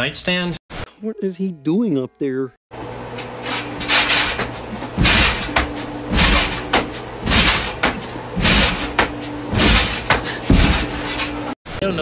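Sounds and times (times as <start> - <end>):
steady low hum: 2.8 - 11.6.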